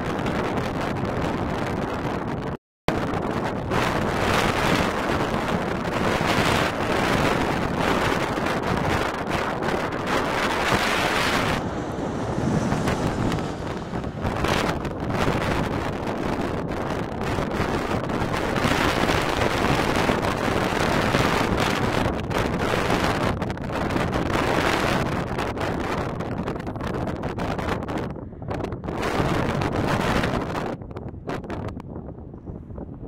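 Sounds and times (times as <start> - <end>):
wind buffeting microphone: 0.0 - 33.0
jet airliner passing overhead: 9.7 - 16.9.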